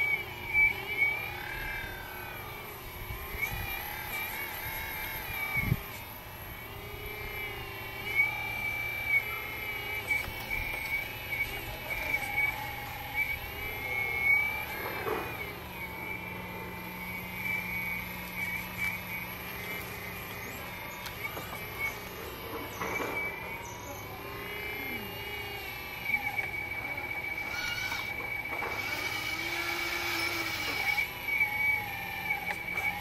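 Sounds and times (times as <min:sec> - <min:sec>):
hydraulic pump whining: 0:00.0 - 0:33.0.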